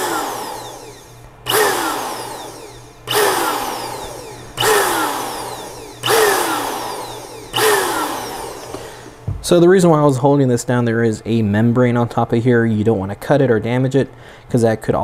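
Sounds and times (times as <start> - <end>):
electric air duster blasts: 0.0 - 9.2.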